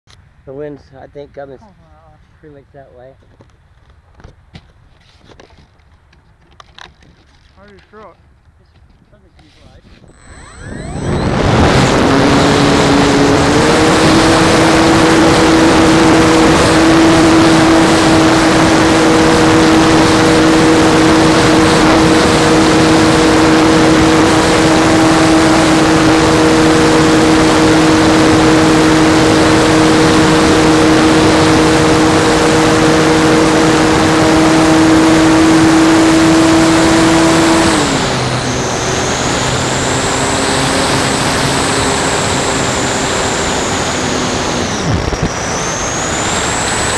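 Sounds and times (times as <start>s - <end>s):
model airplane motor and propeller: 4.9s - 46.9s
thin high whine: 9.5s - 37.0s
wind rush: 9.8s - 34.6s.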